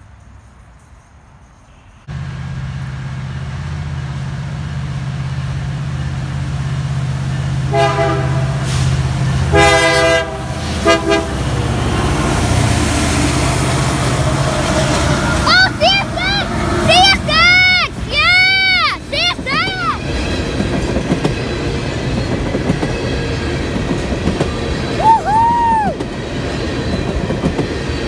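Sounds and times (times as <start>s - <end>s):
diesel locomotive engine droning: 0.0s - 28.0s
train horn blasts: 7.7s - 11.7s.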